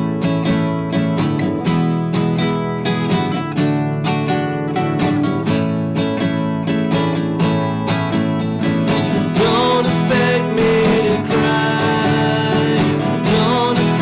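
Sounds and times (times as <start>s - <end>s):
acoustic guitars strummed and picked: 0.0s - 14.0s
man singing: 9.0s - 14.0s.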